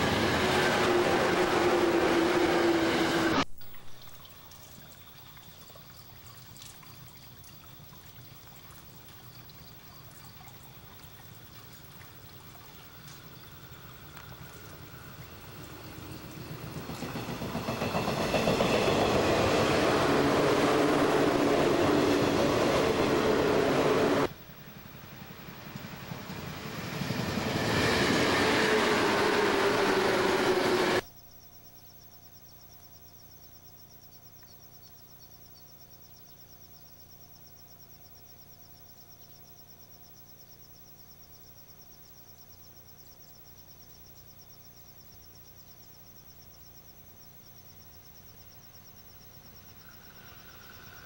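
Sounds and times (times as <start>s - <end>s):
electric train passing: 0.0s - 3.4s, 12.9s - 31.1s, 49.3s - 51.0s
earlier train passing: 0.0s - 3.5s, 12.1s - 31.1s, 49.2s - 51.0s.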